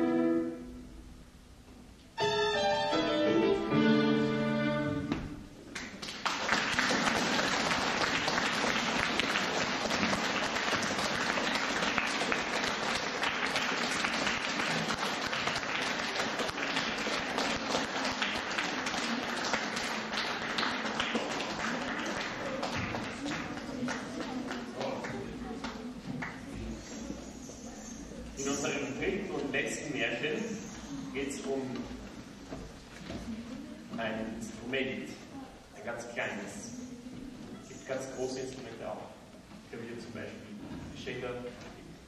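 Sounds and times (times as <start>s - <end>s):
violin and piano: 2.2s - 5.3s
audience applause: 5.8s - 26.5s.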